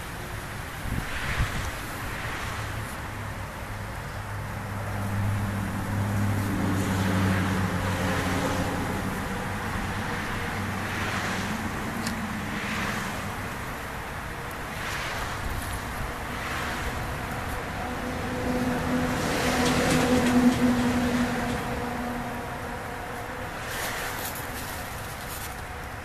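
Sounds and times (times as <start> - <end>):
traffic noise: 0.0 - 26.0
vehicle engine passing: 4.3 - 14.0, 14.7 - 25.4.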